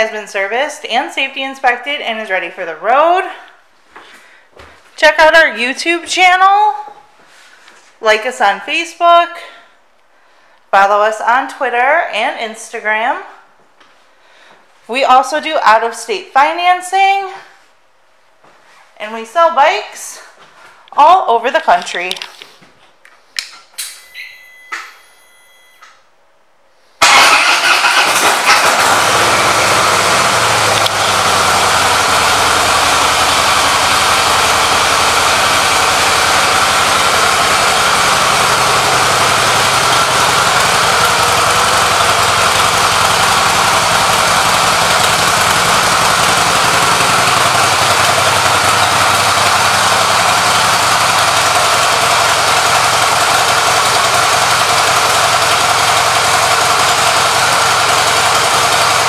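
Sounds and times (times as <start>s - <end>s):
short beeps: 23.9s - 26.0s
motorcycle engine starting and idling: 27.0s - 59.0s.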